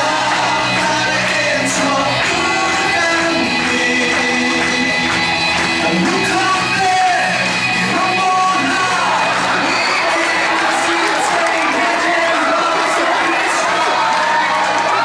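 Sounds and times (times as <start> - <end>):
young men singing into microphones: 0.0 - 5.1, 8.4 - 14.1
amplified backing music: 0.0 - 15.0.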